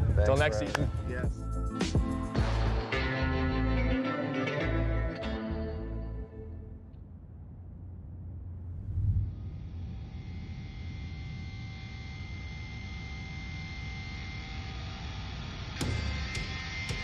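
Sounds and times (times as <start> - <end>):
low rumble drone: 5.6 - 15.8.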